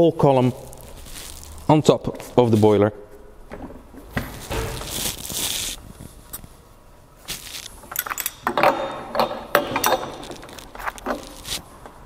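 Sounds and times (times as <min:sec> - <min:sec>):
metal clamp clinking and rattling: 0:07.8 - 0:11.6.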